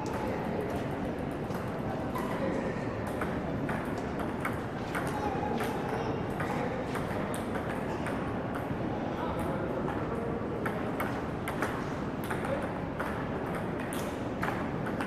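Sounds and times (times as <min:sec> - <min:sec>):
table tennis balls clicking: 0:03.0 - 0:08.8, 0:10.6 - 0:15.0.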